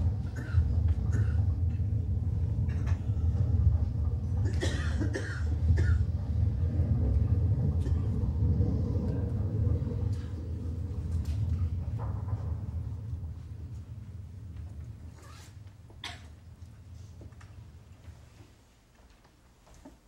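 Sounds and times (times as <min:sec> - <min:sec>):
steady low hum: 0:00.0 - 0:20.0
person coughing: 0:00.3 - 0:01.4, 0:04.4 - 0:06.0.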